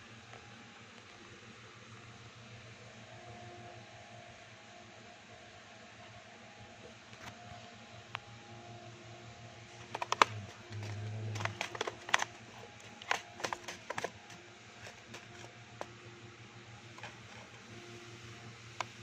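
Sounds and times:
steady low hum: 7.4 - 19.0
handling clicks and taps: 9.8 - 16.0, 16.9 - 17.7.

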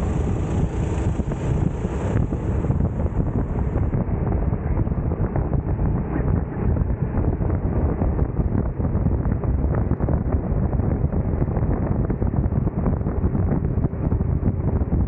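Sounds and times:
go-kart engine running: 0.0 - 4.0
wind buffeting microphone: 0.0 - 15.0.

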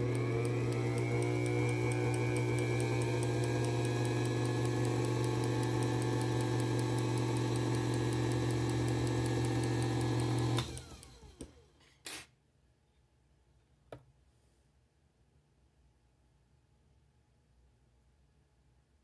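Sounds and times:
lathe motor running: 0.0 - 11.3.

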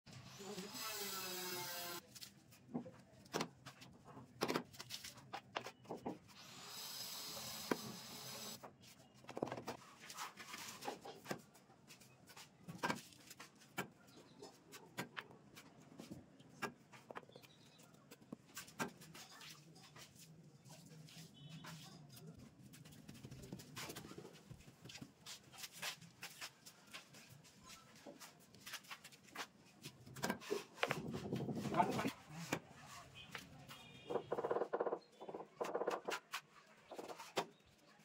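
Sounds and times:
tools tapping and scraping: 27.9 - 33.5.

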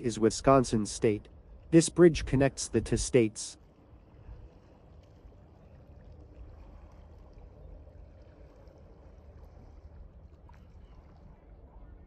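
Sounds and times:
low steady rumble: 0.0 - 12.0
lake water lapping at shore: 3.6 - 11.9.

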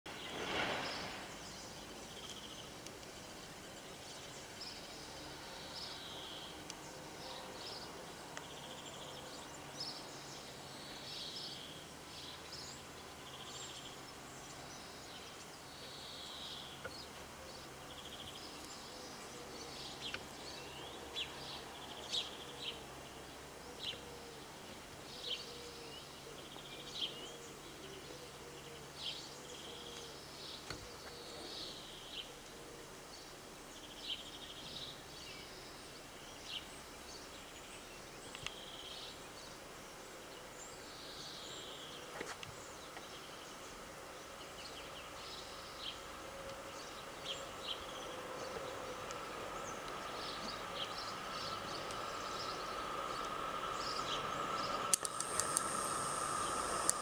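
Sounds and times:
small birds chirping: 0.1 - 57.0.

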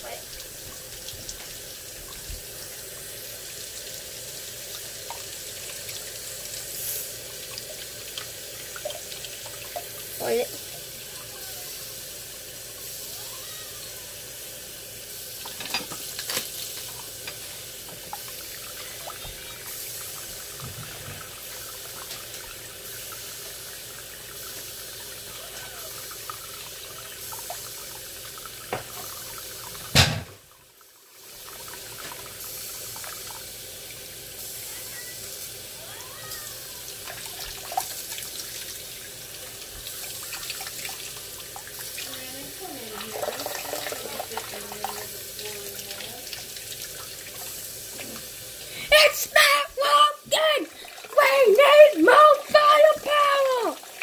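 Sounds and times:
faucet water running into sink: 0.0 - 54.0.

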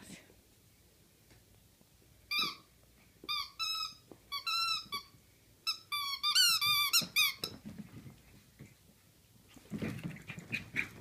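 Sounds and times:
squeaky toy squeaking: 2.3 - 2.7, 3.3 - 5.1, 5.7 - 7.5.

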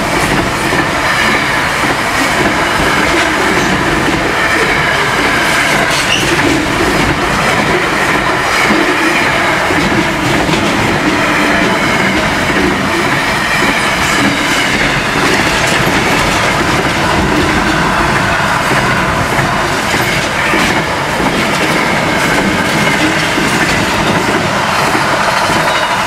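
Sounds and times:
train wheels clattering on rails: 0.0 - 26.0.

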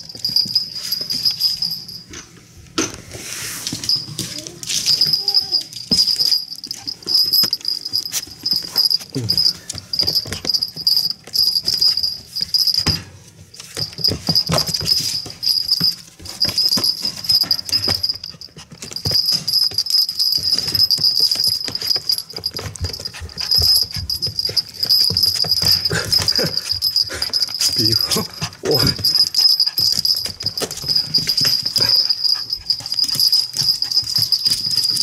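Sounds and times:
clicks and scuffs of movement: 3.0 - 19.6
puppy whining: 3.9 - 12.7, 14.0 - 35.0.

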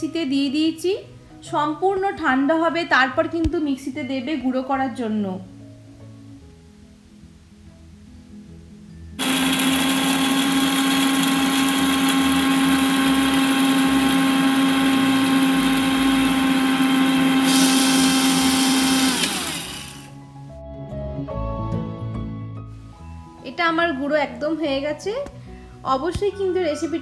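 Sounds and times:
mixer grinder grinding spices: 9.2 - 20.2.

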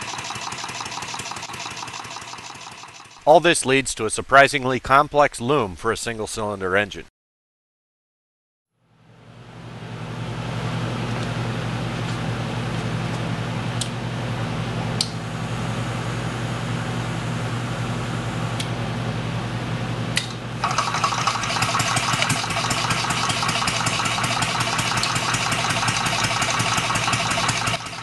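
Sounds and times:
engine starting and clattering: 0.0 - 3.3, 20.6 - 28.0.

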